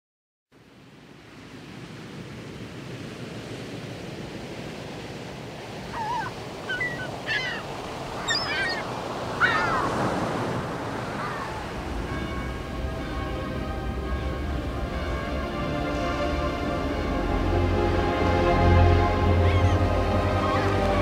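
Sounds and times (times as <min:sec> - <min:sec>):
steady rushing noise: 0:03.8 - 0:21.0
bird cries: 0:05.9 - 0:10.3, 0:10.9 - 0:13.3, 0:19.3 - 0:21.0
music: 0:12.0 - 0:21.0.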